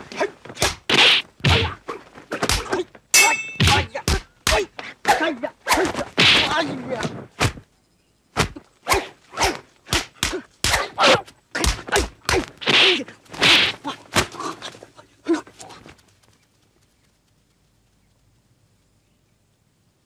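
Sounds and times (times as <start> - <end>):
fighters shouting and grunting: 0.0 - 7.6, 8.4 - 15.8
whip-like swishes: 0.1 - 2.8, 3.6 - 7.6, 8.4 - 14.4
punch and kick impacts: 0.5 - 2.8, 3.6 - 6.7, 7.4 - 7.6, 8.4 - 11.0, 11.6 - 14.3.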